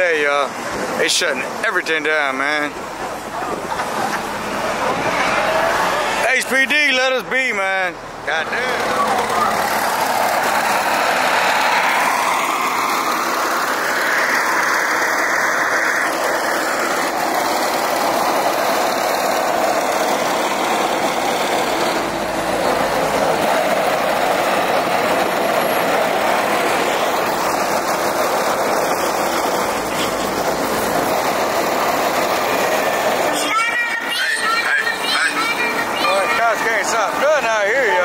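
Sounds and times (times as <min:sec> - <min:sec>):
cars driving past: 0:00.0 - 0:38.0
car pulling away: 0:08.0 - 0:33.3.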